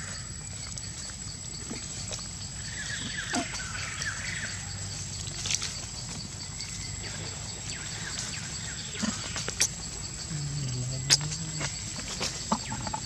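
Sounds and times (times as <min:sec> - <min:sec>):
macaque low drawn-out call: 0:10.2 - 0:12.0.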